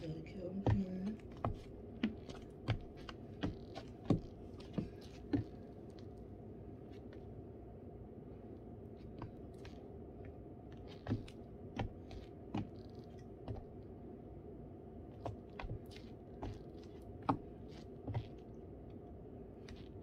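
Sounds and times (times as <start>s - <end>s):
high heels clicking on hardwood floor: 0.5s - 5.7s.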